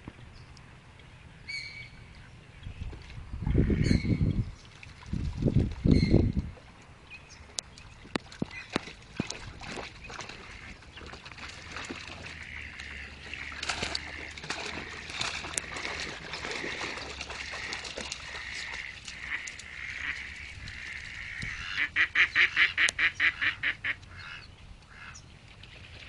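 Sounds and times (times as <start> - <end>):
ducks quacking: 10.3 - 10.8, 12.2 - 25.2.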